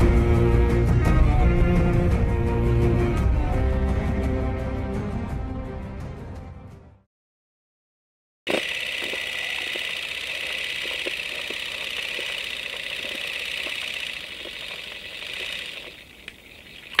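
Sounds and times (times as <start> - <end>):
small machine whirring and clattering: 8.5 - 16.4.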